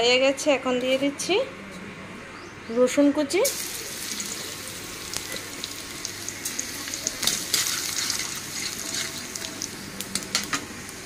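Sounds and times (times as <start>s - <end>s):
garlic sizzling in hot oil: 3.4s - 11.0s.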